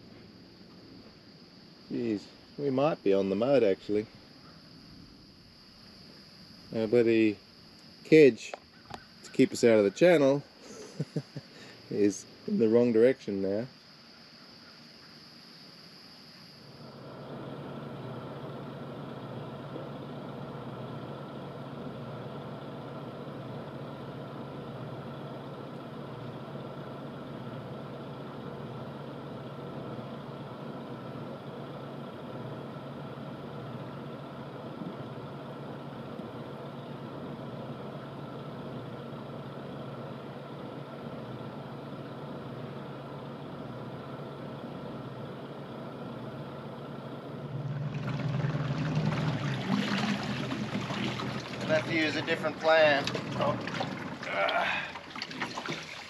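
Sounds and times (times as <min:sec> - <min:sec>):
boat engine idling: 0:16.8 - 0:56.0.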